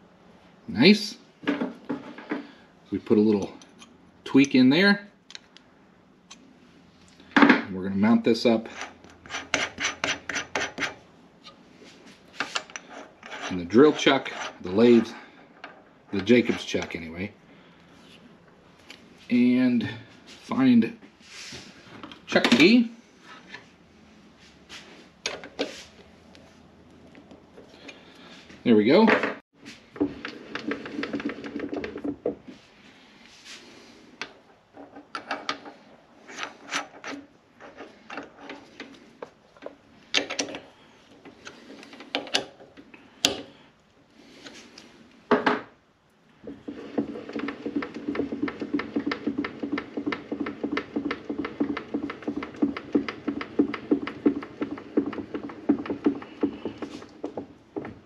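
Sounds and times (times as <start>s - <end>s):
fast mechanical ticking: 46.6s - 57.4s.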